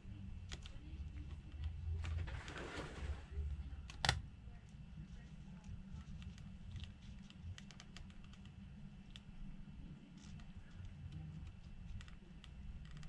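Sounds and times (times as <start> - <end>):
low steady hum: 0.0 - 13.0
fingers clicking and tapping phone: 6.0 - 9.4, 10.2 - 13.0.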